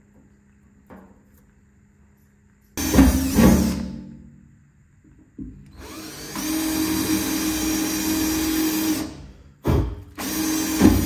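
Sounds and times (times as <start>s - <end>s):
cordless drill whining: 5.7s - 9.2s, 10.2s - 11.0s.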